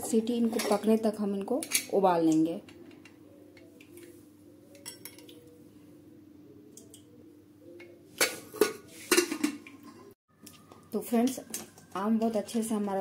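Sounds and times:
metal cookware clattering: 0.3s - 2.4s, 4.8s - 5.4s, 8.2s - 10.1s.

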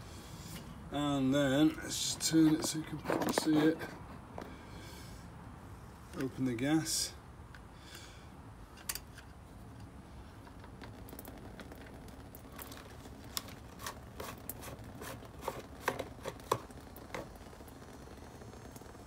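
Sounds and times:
gasoline dripping into plastic bucket: 10.5s - 17.8s.

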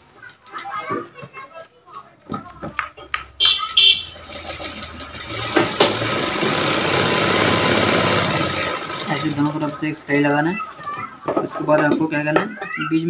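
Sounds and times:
sewing machine running: 3.4s - 10.1s.

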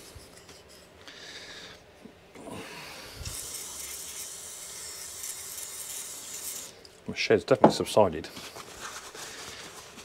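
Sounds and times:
aerosol spray hissing: 3.2s - 6.7s
handling and rubbing noise: 7.7s - 10.0s.

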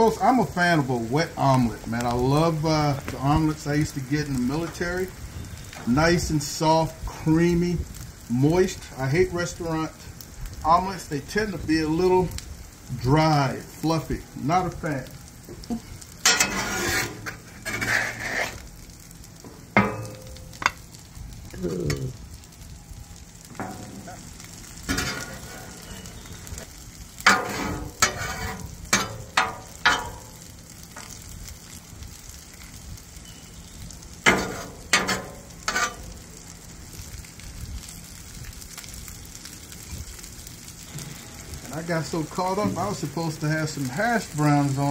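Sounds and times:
egg sizzling on a griddle: 0.0s - 44.9s
metal spatula scraping and tapping: 16.2s - 18.6s, 27.2s - 30.2s, 34.3s - 36.1s.

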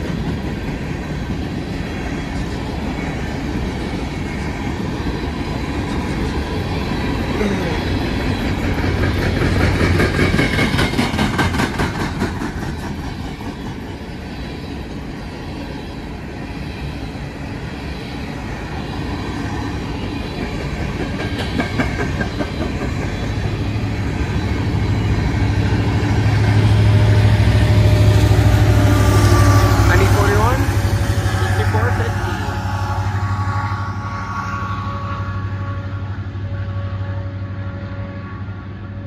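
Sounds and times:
diesel locomotive engine drone: 0.0s - 39.0s
train wheels clicking over rail: 8.4s - 13.9s, 20.4s - 23.3s.

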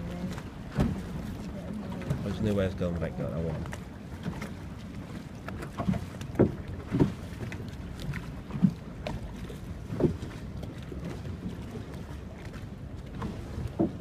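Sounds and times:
water slapping against wooden hull: 0.0s - 14.0s.

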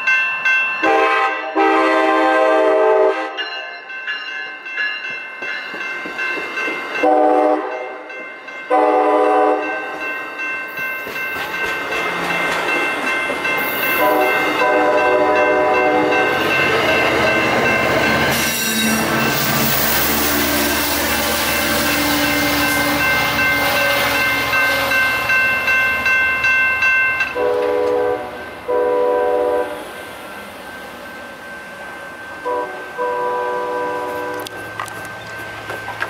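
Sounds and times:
railroad crossing bell ringing: 0.0s - 36.0s
train wheel and rail noise: 0.0s - 36.0s
train horn blasts: 0.8s - 3.4s, 7.0s - 7.9s, 8.7s - 9.8s, 14.0s - 16.3s, 27.4s - 30.0s, 32.4s - 34.6s.

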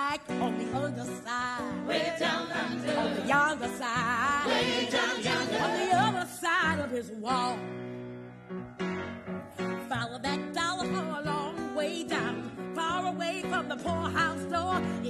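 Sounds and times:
woman singing with vibrato: 0.0s - 4.6s, 5.3s - 7.6s, 9.9s - 15.0s
other voices singing: 1.6s - 6.4s.

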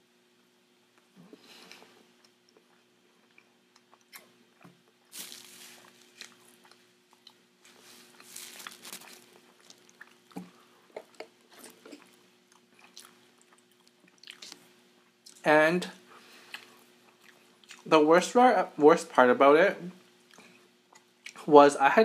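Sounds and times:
chewing and mouth sounds: 1.7s - 15.4s, 16.5s - 17.9s, 20.2s - 21.4s
napkin rustling: 5.1s - 6.5s, 7.7s - 9.9s.

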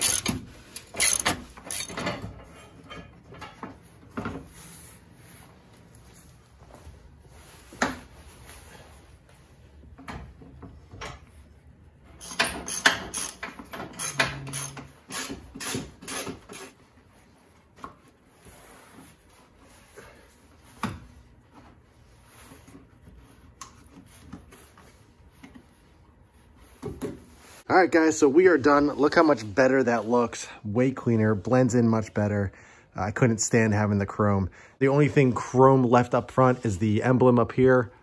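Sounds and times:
rapid clicking of hand tools: 0.0s - 2.1s, 12.2s - 16.8s
metal clinks and knocks: 0.0s - 3.6s.

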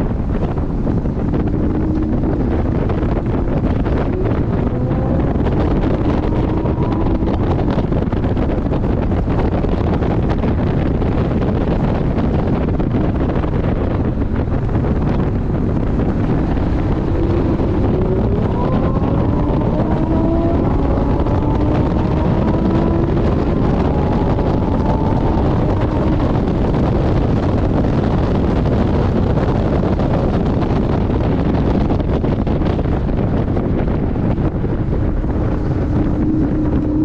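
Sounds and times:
car engine accelerating: 0.0s - 37.0s
wind buffeting microphone: 0.0s - 37.0s.

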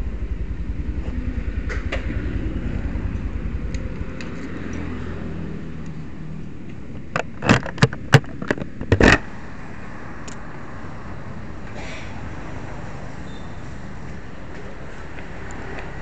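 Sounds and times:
motorcycle engine running: 0.0s - 6.6s
sharp clicks and knocks: 6.6s - 9.3s.

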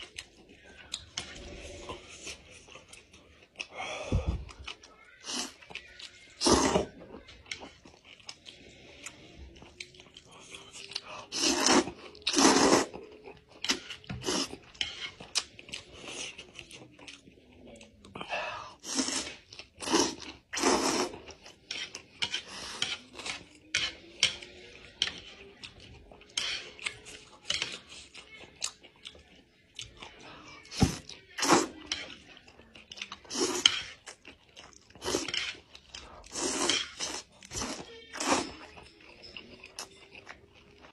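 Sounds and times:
chewing: 0.0s - 40.9s
slurping noodles: 6.3s - 7.0s, 11.0s - 13.1s, 13.7s - 16.4s, 18.7s - 23.4s, 30.7s - 31.8s, 33.2s - 34.1s, 34.9s - 38.7s.

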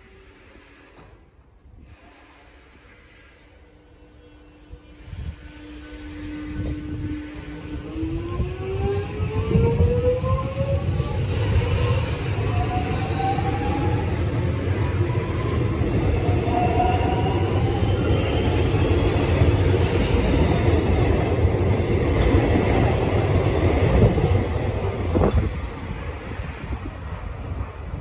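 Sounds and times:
train wheels rumbling on rails: 0.0s - 28.0s.

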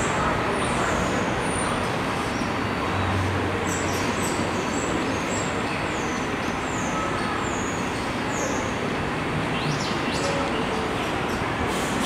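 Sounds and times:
street traffic: 0.0s - 12.0s
subway train hum and hiss: 0.0s - 12.0s.

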